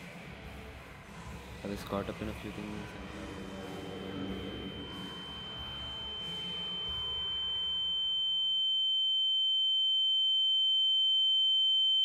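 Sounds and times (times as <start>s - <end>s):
faint lower tone: 2.8s - 12.0s
high-pitched ringing tone: 2.8s - 12.0s.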